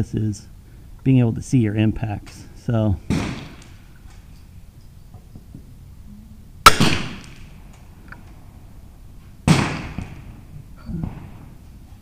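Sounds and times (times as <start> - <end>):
rifle shot: 3.1 - 3.8, 6.6 - 7.6, 9.4 - 10.4.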